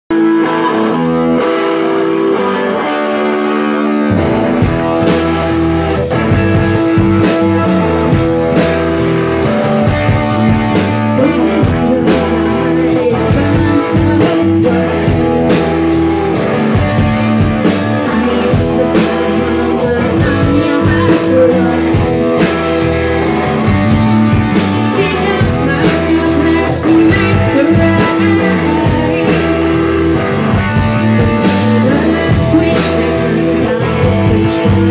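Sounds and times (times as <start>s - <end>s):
distorted electric guitar: 0.0s - 34.9s
drums and bass guitar: 0.0s - 34.9s
woman singing: 10.7s - 15.8s, 17.6s - 23.0s, 24.6s - 30.1s, 31.1s - 34.9s.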